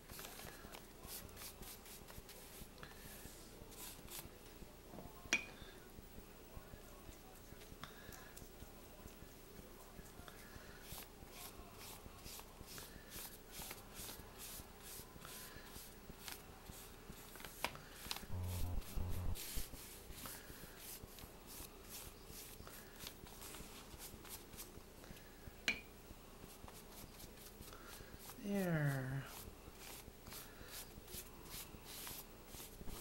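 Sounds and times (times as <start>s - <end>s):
paintbrush scratching on paper: 3.7s - 4.3s, 18.3s - 22.6s, 29.3s - 33.0s.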